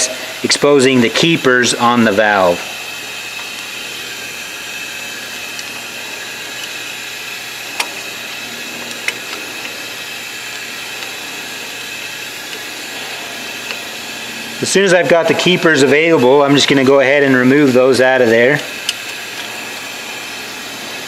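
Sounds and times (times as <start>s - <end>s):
compressed air hissing: 0.0s - 4.8s
valve spring compressor clicks: 5.4s - 14.0s, 18.7s - 20.0s.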